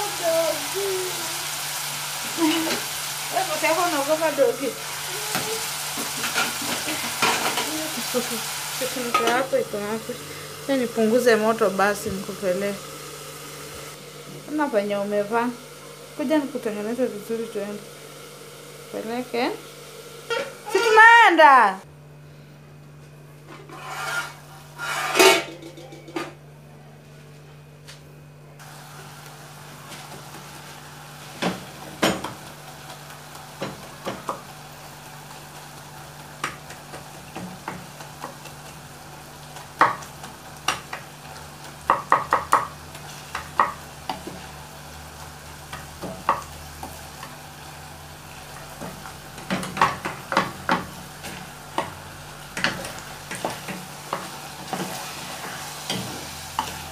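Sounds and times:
food sizzling in a saucepan: 0.0s - 21.8s, 23.7s - 25.4s, 28.6s - 56.9s
wooden spoon knocking against pan: 43.4s - 44.3s.

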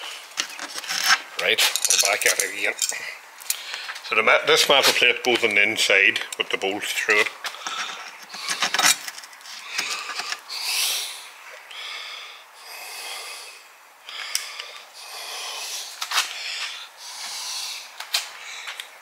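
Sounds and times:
person breathing loudly: 9.5s - 19.0s.

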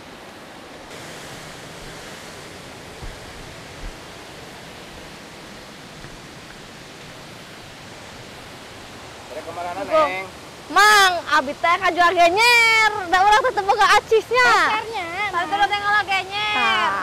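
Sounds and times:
rushing hiss of outdoor ambience: 0.0s - 17.0s
soft low thumps: 3.0s - 4.1s.

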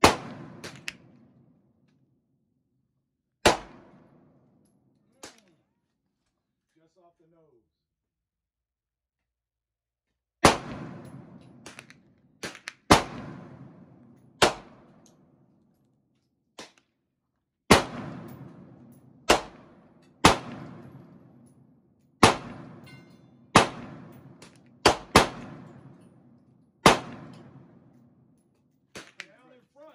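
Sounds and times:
handgun shots with echo: 0.0s - 1.2s, 10.4s - 13.7s, 17.7s - 21.5s, 22.2s - 26.1s, 26.8s - 28.0s, 29.0s - 29.4s.

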